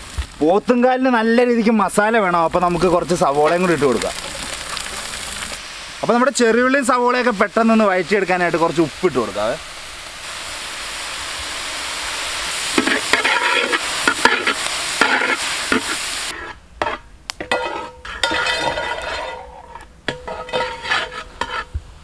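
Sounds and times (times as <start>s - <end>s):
onions sizzling in oil: 0.0s - 22.0s
ladle scraping metal pan: 12.8s - 21.8s.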